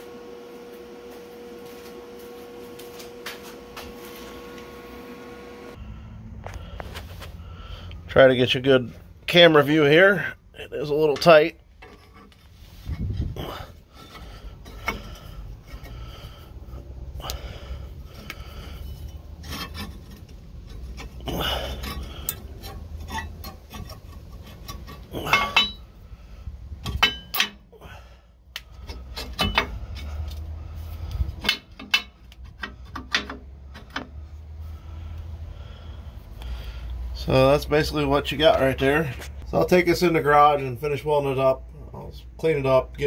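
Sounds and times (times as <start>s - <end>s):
low steady rumble: 5.7s - 43.0s
metal bracket clinking and scraping: 11.0s - 16.0s, 18.1s - 26.0s, 26.8s - 27.7s, 28.8s - 30.4s, 31.1s - 34.1s.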